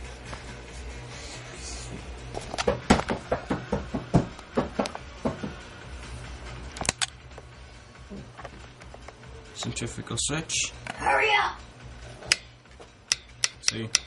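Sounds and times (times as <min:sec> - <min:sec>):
low steady hum: 0:00.0 - 0:14.0
sharp clicks and knocks: 0:13.1 - 0:14.0.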